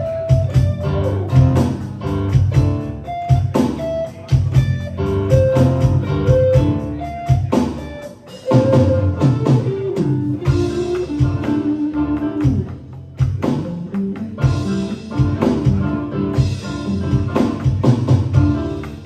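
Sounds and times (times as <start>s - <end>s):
bass guitar: 0.0s - 19.0s
drum kit: 0.0s - 19.0s
electric guitar: 0.0s - 19.0s
electric keyboard: 0.0s - 19.0s.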